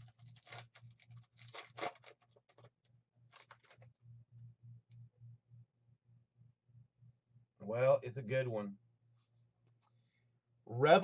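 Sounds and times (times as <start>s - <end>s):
foil wrapper crinkling and tearing: 0.0s - 3.9s.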